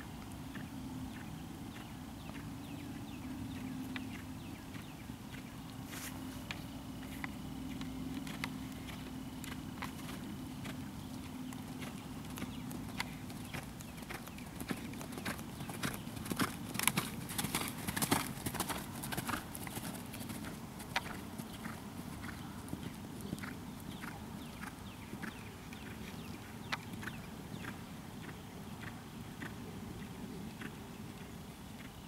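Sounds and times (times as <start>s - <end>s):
horse hoofbeats on sand: 7.7s - 26.2s.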